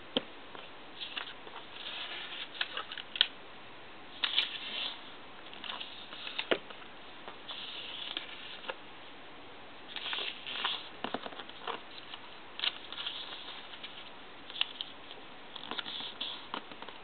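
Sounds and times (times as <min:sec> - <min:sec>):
paper rustling and crinkling: 0:01.0 - 0:03.3, 0:04.2 - 0:06.8, 0:07.4 - 0:08.8, 0:09.9 - 0:17.0.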